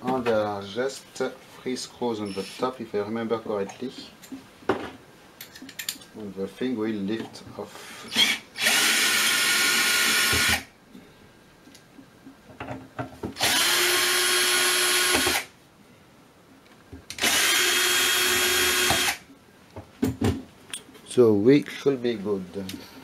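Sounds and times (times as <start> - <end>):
power screwdriver running: 8.1 - 10.6, 13.4 - 15.5, 17.2 - 19.2.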